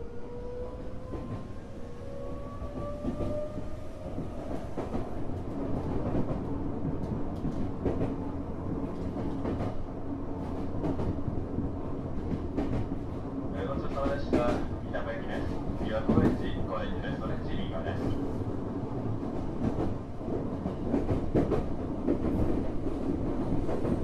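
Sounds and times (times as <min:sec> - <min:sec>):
train rumble: 0:00.0 - 0:24.0
clacks over rail joints: 0:15.3 - 0:16.6, 0:19.6 - 0:24.0.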